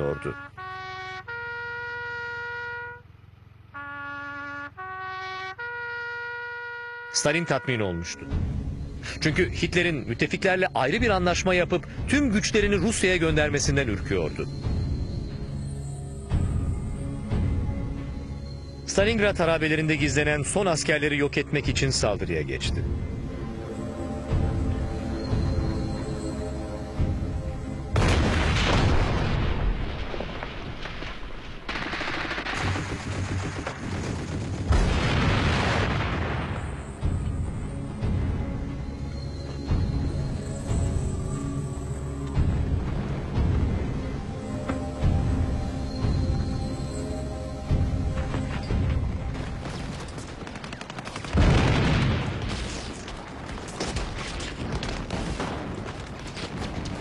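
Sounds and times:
explosion blasts: 28.0 - 36.9, 51.3 - 53.0
rifle and machine-gun fire: 31.6 - 36.1, 49.6 - 52.8
rapid gunfire: 31.7 - 35.8, 49.7 - 52.1.

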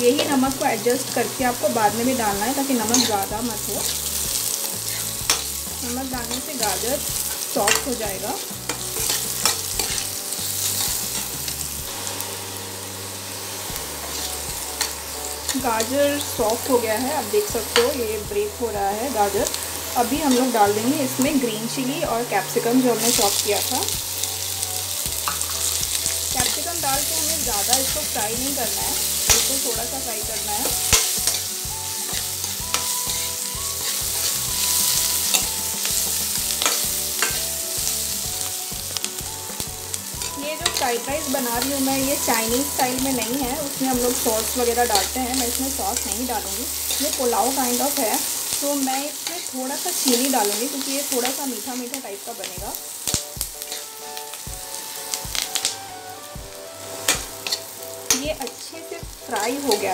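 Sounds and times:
food sizzling in hot oil: 0.0 - 59.9
steel spoon scraping pan: 0.1 - 18.0, 23.0 - 48.2, 53.6 - 54.0, 56.9 - 58.6.

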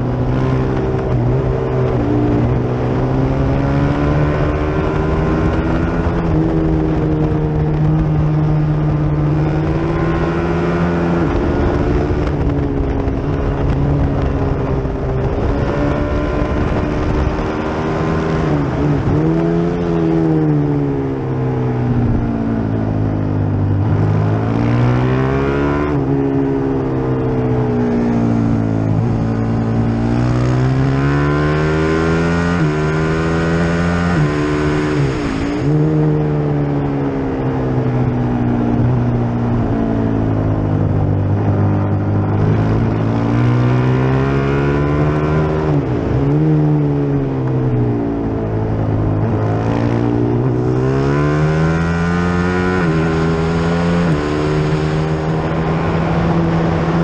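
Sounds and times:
racing motorcycle engine revving: 0.0 - 57.0.

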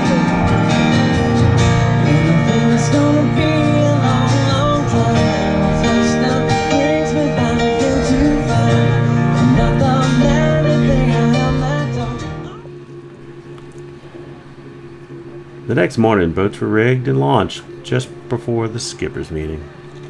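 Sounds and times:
country band playing: 0.0 - 12.5
strummed acoustic guitar: 0.0 - 12.6
man singing: 1.9 - 12.6.

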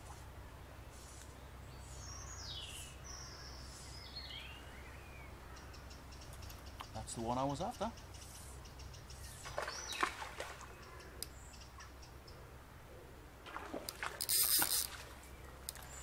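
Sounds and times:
fish splashing in water: 9.4 - 10.8, 13.4 - 16.0.

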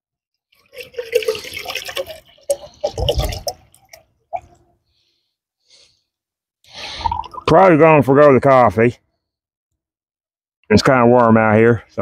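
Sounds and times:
water pouring into metal cup: 0.5 - 4.5, 7.0 - 7.5
water drips: 0.5 - 4.7.

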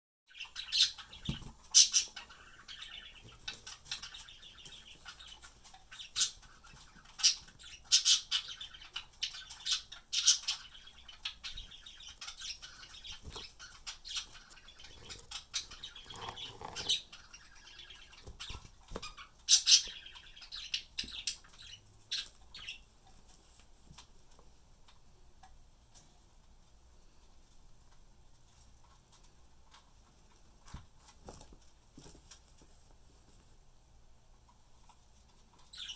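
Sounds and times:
budgerigars chattering and chirping: 0.3 - 22.9, 35.7 - 35.9.

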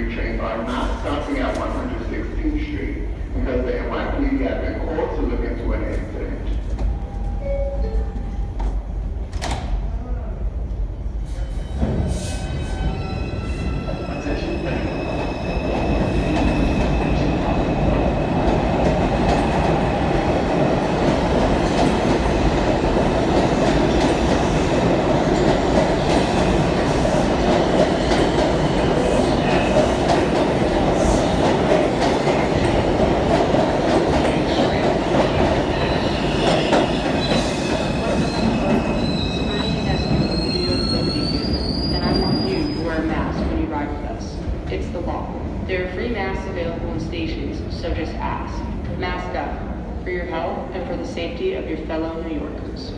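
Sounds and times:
subway train wheels rumbling: 0.0 - 52.9.

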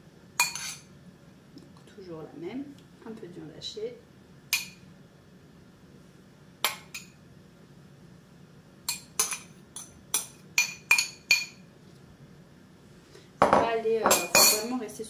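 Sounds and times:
metal spoon clinking on ceramic bowl: 0.4 - 0.9, 8.9 - 11.6, 13.4 - 14.7.

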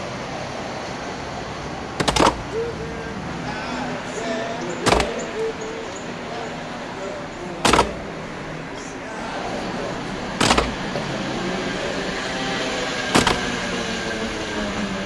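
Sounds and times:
steady background noise: 0.0 - 15.0
sharp knocks: 2.0 - 2.6, 4.8 - 5.3, 7.6 - 8.1, 10.4 - 11.1, 13.1 - 13.6.

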